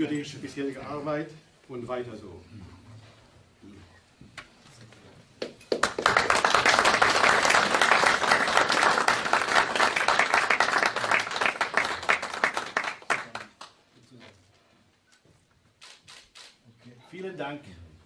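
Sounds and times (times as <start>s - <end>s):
audience applauding: 5.7s - 13.8s.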